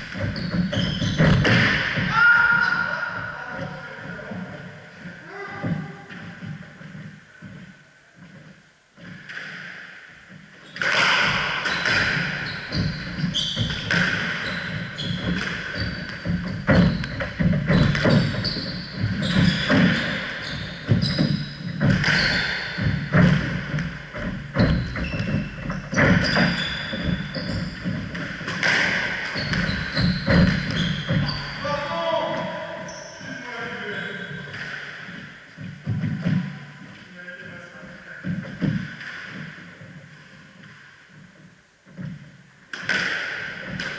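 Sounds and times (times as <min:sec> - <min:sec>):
squash ball smacking: 0:00.0 - 0:02.1, 0:10.8 - 0:31.2, 0:42.7 - 0:43.9
shoes squeaking on wooden floor: 0:00.0 - 0:37.1.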